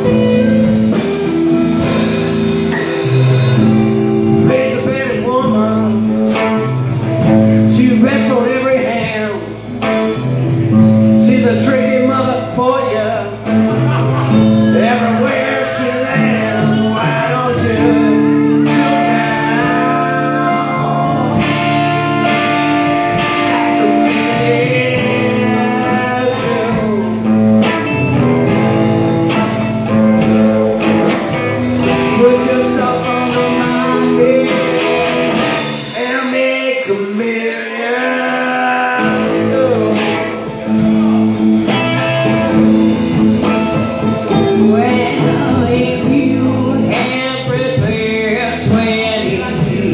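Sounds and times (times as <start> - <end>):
bass guitar: 0.0 - 49.9
drums: 0.0 - 49.9
electric guitars: 0.0 - 49.9
woman singing: 44.3 - 49.9.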